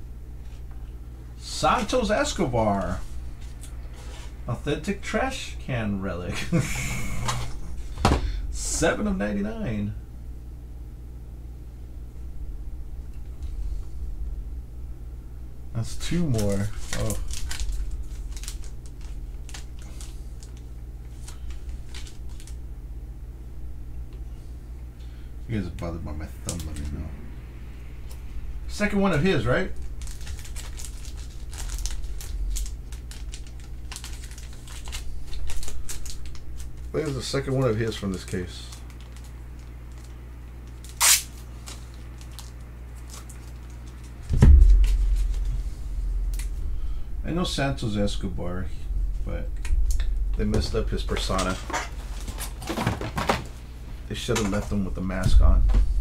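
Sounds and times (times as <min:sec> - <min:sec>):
low steady hum: 0:00.0 - 0:56.0
heavy low thump: 0:44.2 - 0:51.9, 0:55.2 - 0:56.0.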